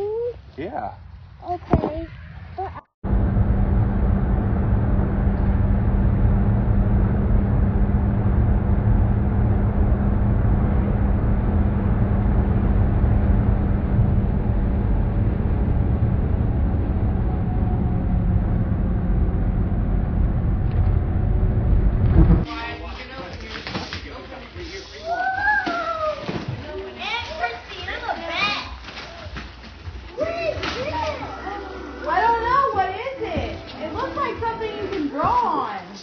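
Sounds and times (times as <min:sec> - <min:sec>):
vehicle road noise: 0:01.2 - 0:22.5.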